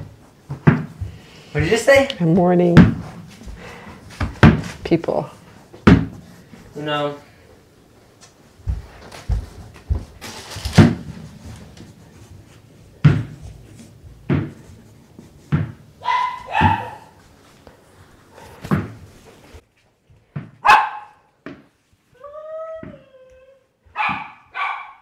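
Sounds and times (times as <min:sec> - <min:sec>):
dog barking: 0:16.0 - 0:17.2, 0:20.6 - 0:21.3, 0:23.9 - 0:25.0.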